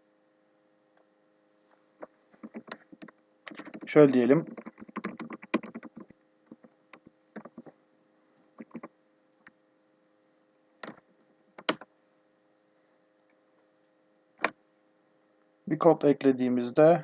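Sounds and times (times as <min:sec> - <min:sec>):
computer keyboard keystrokes: 0:02.4 - 0:07.7, 0:08.6 - 0:08.9, 0:11.6 - 0:11.9.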